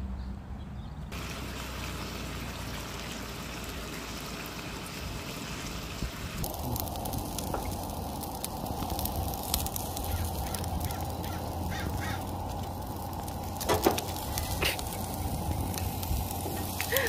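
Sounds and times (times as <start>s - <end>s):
meat sizzling on grill: 1.2s - 17.0s
crow cawing loudly: 10.1s - 12.3s.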